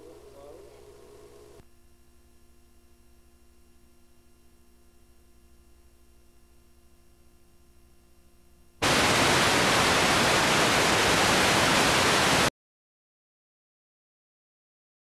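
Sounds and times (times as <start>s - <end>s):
faint steady hum: 0.0s - 12.5s
loud static hiss: 8.8s - 12.5s.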